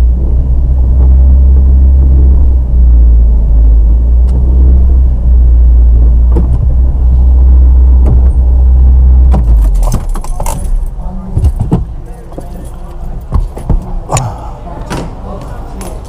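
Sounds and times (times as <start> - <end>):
car engine running: 0.0 - 14.8
clicks and knocks: 9.2 - 12.6.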